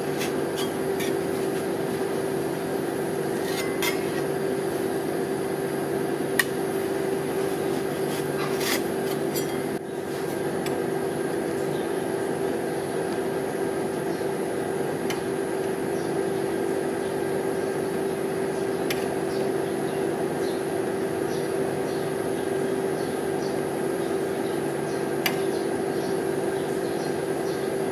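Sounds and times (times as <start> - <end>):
refrigeration unit humming: 0.0 - 27.9
metal spatula scraping steel plate: 0.1 - 1.6, 3.3 - 4.3, 8.0 - 9.7.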